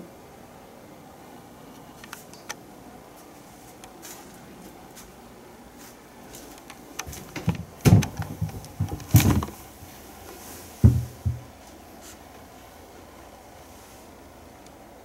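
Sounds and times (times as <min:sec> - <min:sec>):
cat thumping on wooden bench: 0:07.3 - 0:09.6, 0:10.8 - 0:11.5
glass door rattling: 0:07.3 - 0:09.6.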